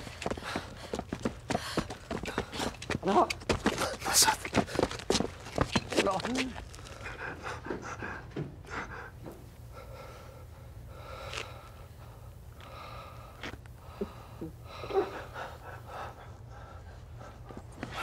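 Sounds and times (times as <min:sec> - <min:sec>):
people breathing hard: 0:00.0 - 0:03.0, 0:03.7 - 0:05.4, 0:06.7 - 0:18.0.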